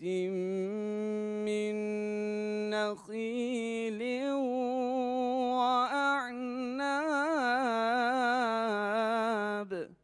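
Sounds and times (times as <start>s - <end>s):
man reciting melodically: 0.0s - 10.0s.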